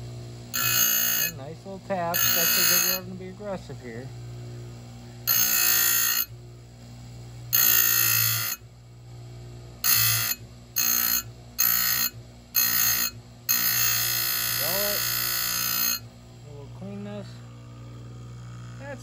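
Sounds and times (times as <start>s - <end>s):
grinding wheel on metal: 0.0s - 4.1s, 5.2s - 6.3s, 7.5s - 8.6s, 9.8s - 16.1s
grinder motor running: 0.0s - 19.0s.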